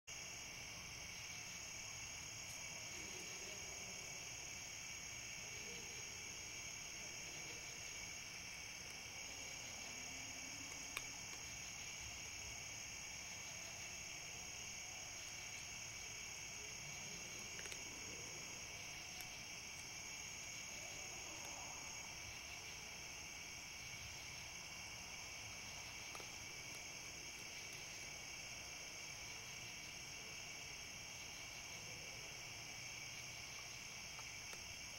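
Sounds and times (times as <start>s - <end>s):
night insects trilling: 0.1s - 34.9s
click: 10.7s - 11.4s.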